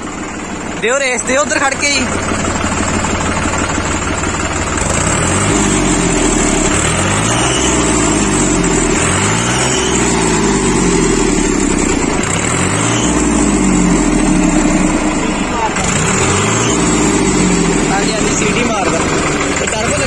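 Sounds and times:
tractor diesel engine idling and revving: 0.0 - 20.0.

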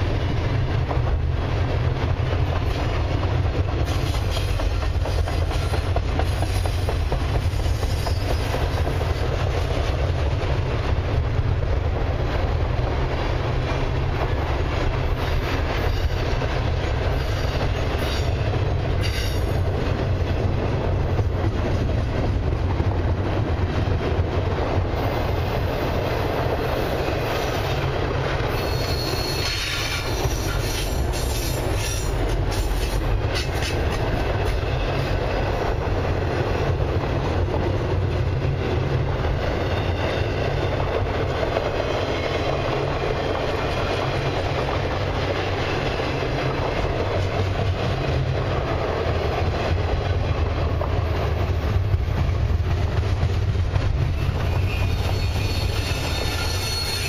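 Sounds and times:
rail clicks: 0.0 - 57.0
train wheels rumbling on rail: 0.0 - 57.0
faint high wheel squeal: 28.5 - 32.2, 54.2 - 57.0.

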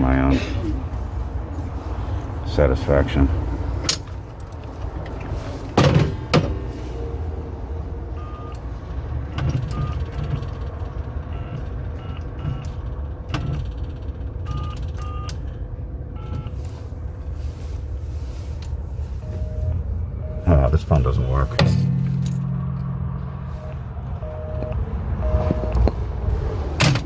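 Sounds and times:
low street rumble: 0.0 - 27.0
keypad beeps: 8.2 - 8.6, 11.3 - 12.7, 14.5 - 15.4, 16.2 - 16.5, 19.2 - 20.5, 23.6 - 25.9.

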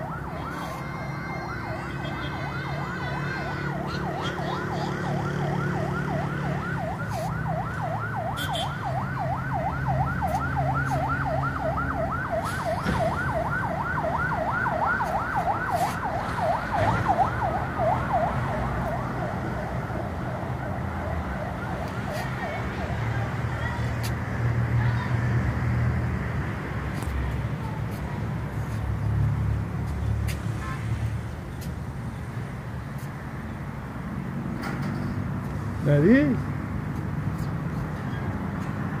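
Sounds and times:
siren yelping: 0.0 - 23.4.

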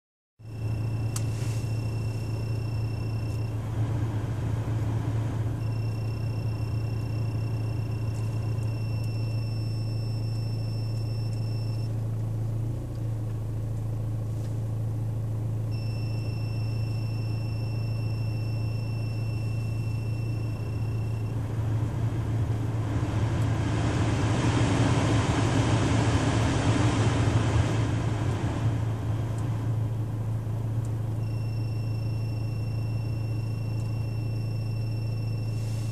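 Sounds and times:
thin high whine: 0.4 - 3.7, 5.5 - 11.9, 15.7 - 22.8, 31.1 - 35.9
low engine hum: 0.4 - 35.9
blower fan running: 0.5 - 35.9.

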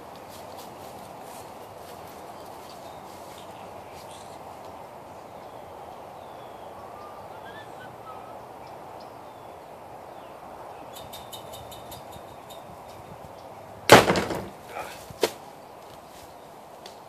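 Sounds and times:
outdoor background hum: 0.0 - 17.0
faint bird chirps: 2.4 - 4.5, 5.2 - 13.5.

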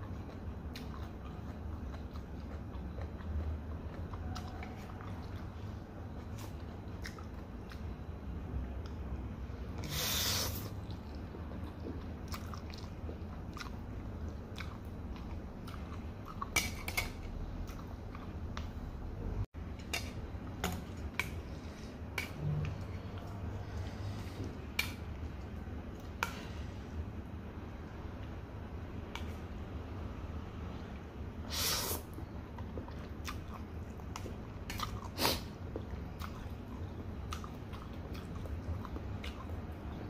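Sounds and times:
chewing noodles: 0.0 - 8.0, 10.6 - 18.4, 32.2 - 40.0
short loud hiss: 31.5 - 32.0.

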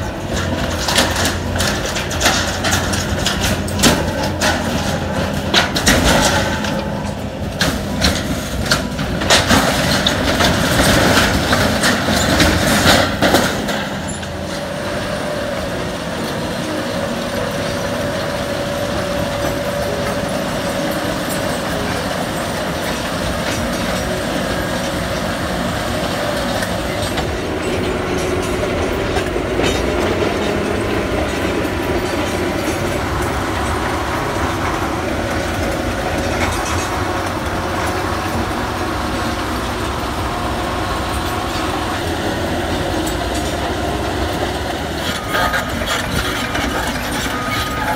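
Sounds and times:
heavy vehicle mechanical drone: 0.0 - 47.9.

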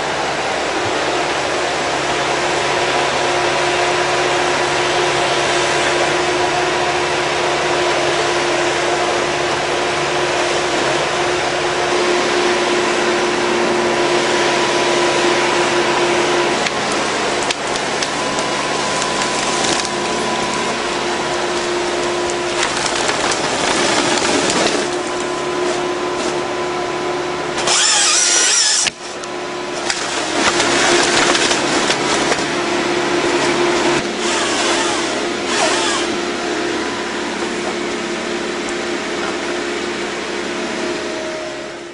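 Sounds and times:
harvester engine and hydraulics: 0.0 - 41.9
chainsaw cutting trunk: 15.4 - 26.5, 27.5 - 36.8
branches cracking and splintering: 16.6 - 26.5, 27.6 - 36.1.

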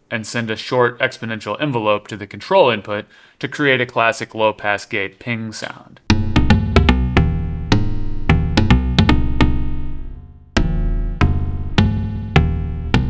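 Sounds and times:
plucky synthesizer notes: 6.1 - 13.0.

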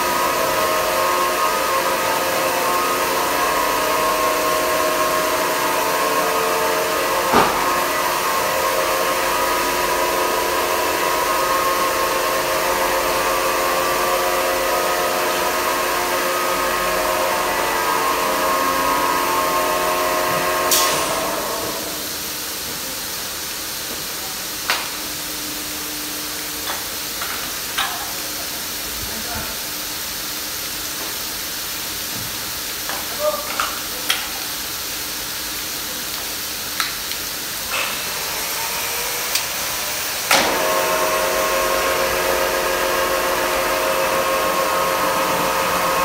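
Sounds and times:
polishing machine grinding stone: 37.7 - 46.0.

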